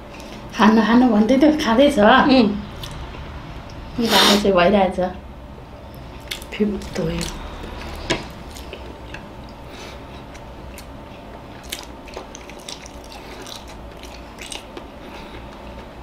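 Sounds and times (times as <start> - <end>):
person chewing: 0.0 - 0.5, 2.8 - 3.8, 5.9 - 16.0
faint low hum: 0.0 - 16.0.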